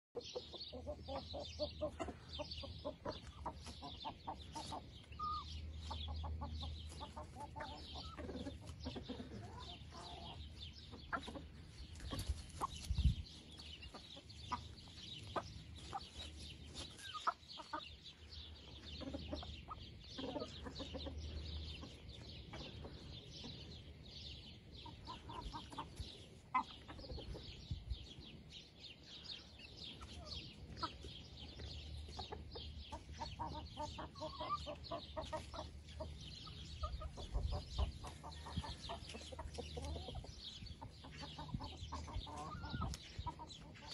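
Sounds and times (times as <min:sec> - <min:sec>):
chickens clucking: 0:00.2 - 0:43.9.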